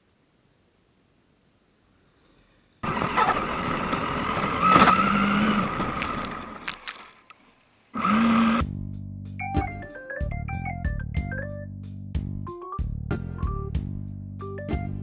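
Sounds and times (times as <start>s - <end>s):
electric motor whine: 2.8s - 6.8s, 8.0s - 8.6s.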